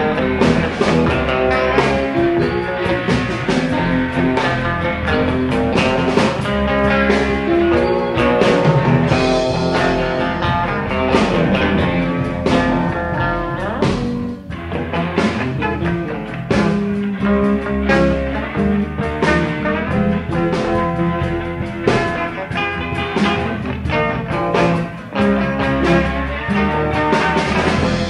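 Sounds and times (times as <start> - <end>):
drum hits: 0.0 - 17.4
rock guitar: 0.0 - 28.0.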